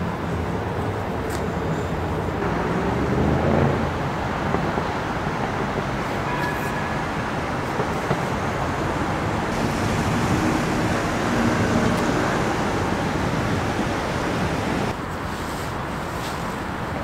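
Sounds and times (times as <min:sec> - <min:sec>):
city road traffic: 0:00.0 - 0:17.0
vehicle passing: 0:09.1 - 0:15.0.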